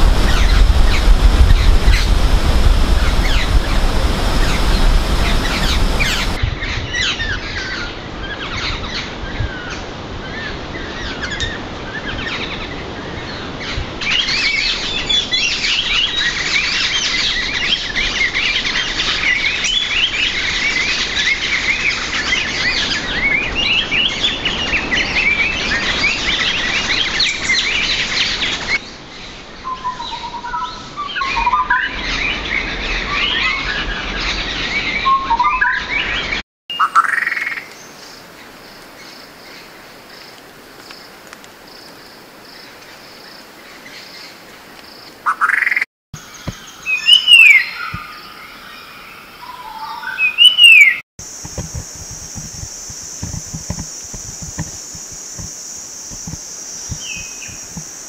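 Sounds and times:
birds chattering: 3.0s - 6.4s, 49.4s - 58.0s
lower whistled bird notes: 46.3s - 58.0s.

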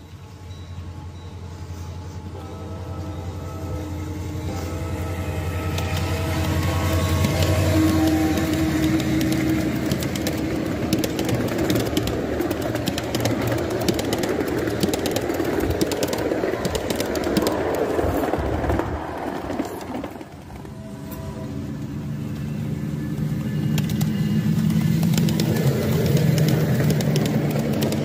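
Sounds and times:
locomotive motor hum: 0.0s - 28.0s
train wheels clicking on track: 3.7s - 28.0s.

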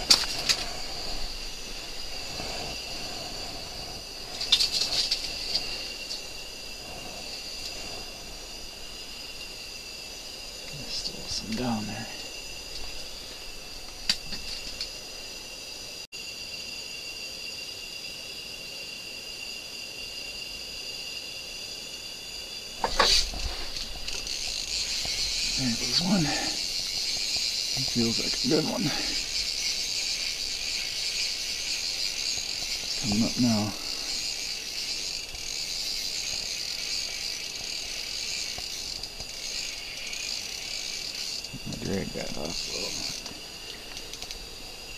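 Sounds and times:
high-pitched hiss: 0.0s - 44.9s
faint ticks: 30.9s - 41.9s, 42.5s - 44.4s.

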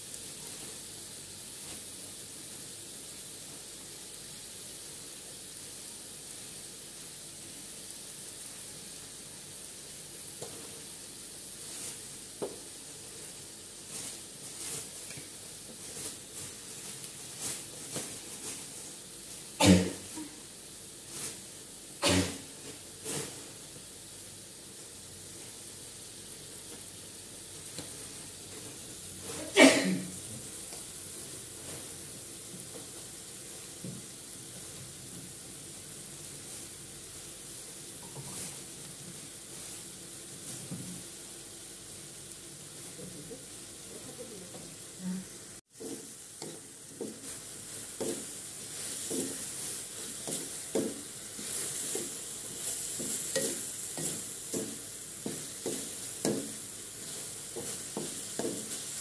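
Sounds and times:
meat sizzling in a wok: 0.0s - 59.0s
wooden spatula knocking in pan: 45.7s - 49.4s, 50.2s - 51.1s, 52.9s - 56.6s, 57.5s - 58.9s.

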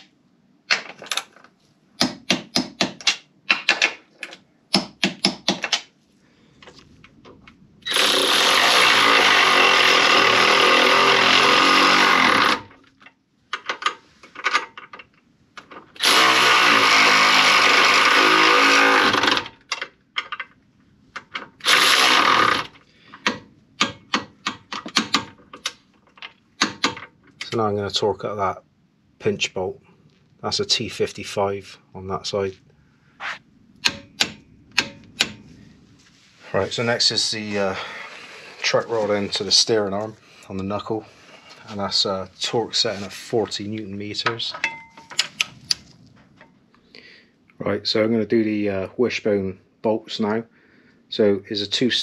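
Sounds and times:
power tool running: 7.8s - 12.8s, 16.0s - 19.6s, 21.6s - 22.8s
hand ratchet clicking: 21.6s - 25.8s.

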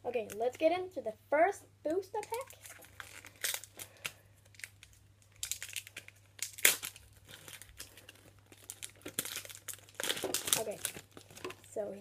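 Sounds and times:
foil wrapper tearing and crinkling: 2.2s - 11.7s.

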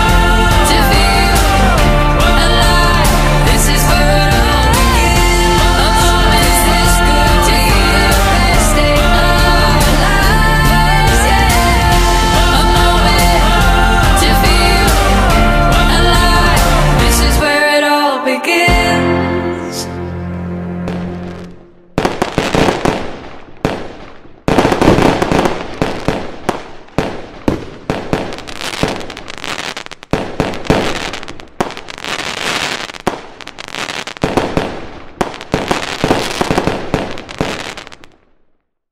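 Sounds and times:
music held chord: 13.4s - 22.0s
loud bangs with crackle: 22.0s - 38.3s.

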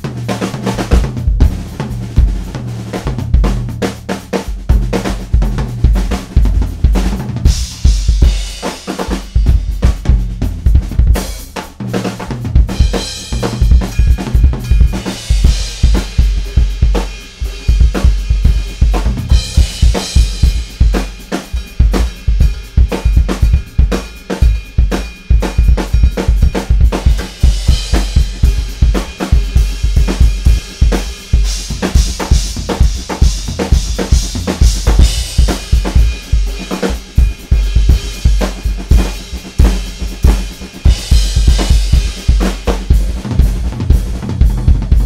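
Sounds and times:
drum kit solo: 0.0s - 45.0s
cymbal crashes: 12.7s - 43.1s.

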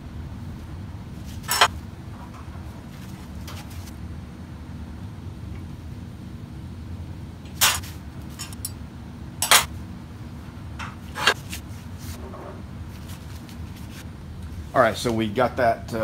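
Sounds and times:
steady low hum: 0.0s - 16.0s
metal clinking and knocking: 1.4s - 1.7s.

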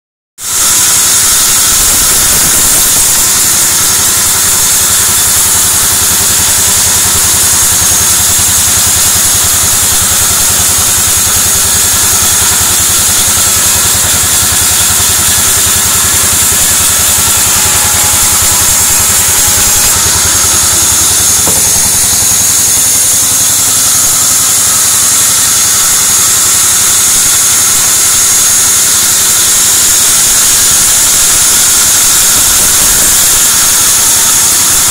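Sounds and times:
band saw ripping wood: 0.4s - 26.5s.

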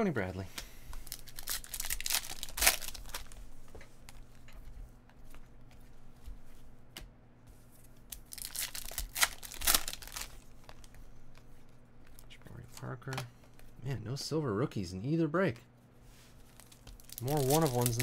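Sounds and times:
cards being handled: 0.6s - 13.8s, 16.2s - 18.0s
foil wrappers tearing: 1.0s - 3.4s, 8.3s - 10.4s, 16.5s - 18.0s.

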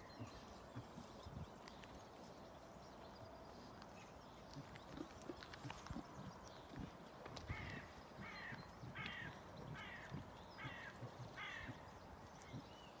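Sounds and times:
crow cawing: 9.1s - 11.7s.

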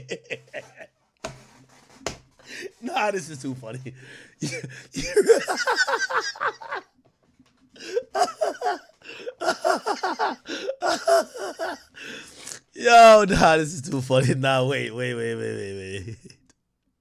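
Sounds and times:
man laughing: 0.0s - 0.9s, 4.4s - 6.9s, 7.8s - 11.9s.

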